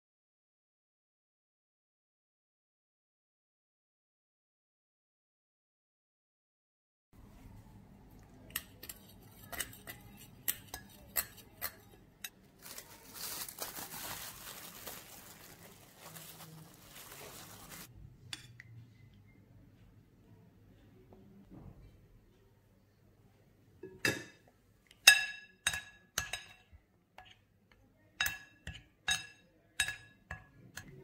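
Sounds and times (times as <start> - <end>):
cling film crinkling: 12.6 - 17.9
spoon clinking glass bowl: 25.0 - 27.4, 28.2 - 31.0.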